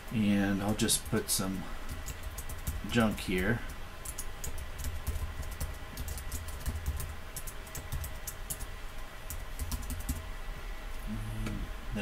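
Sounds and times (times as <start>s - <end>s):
steady low hum: 0.0s - 12.0s
typing on computer keyboard: 1.9s - 8.7s, 9.3s - 10.2s.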